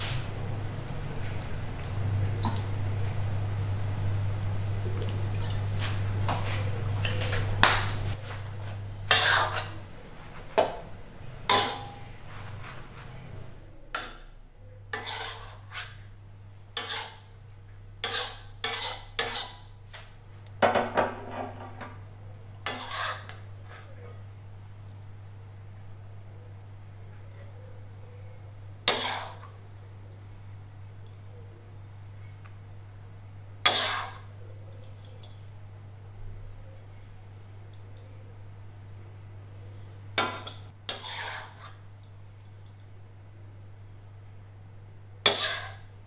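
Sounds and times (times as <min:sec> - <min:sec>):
low steady hum: 0:00.0 - 0:46.0
metal spatula scraping a wok: 0:09.1 - 0:09.8, 0:11.5 - 0:13.4, 0:14.9 - 0:16.1, 0:16.8 - 0:17.3, 0:18.0 - 0:19.7, 0:22.6 - 0:23.9, 0:28.9 - 0:29.4, 0:33.6 - 0:34.3, 0:40.2 - 0:41.8, 0:45.2 - 0:46.0.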